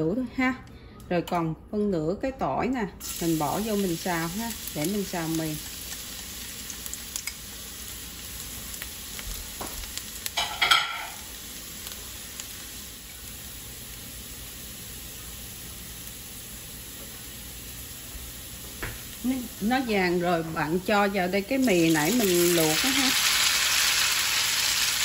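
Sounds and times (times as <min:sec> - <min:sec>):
garlic sizzling in hot oil: 0:03.0 - 0:25.0
small crackles: 0:04.7 - 0:07.5.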